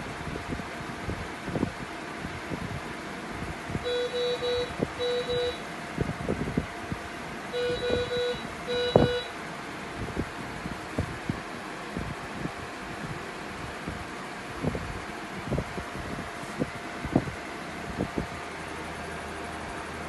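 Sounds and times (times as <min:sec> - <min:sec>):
ventilator hum: 0:00.0 - 0:20.0
ventilator alarm beeping: 0:03.8 - 0:05.7, 0:07.5 - 0:09.5.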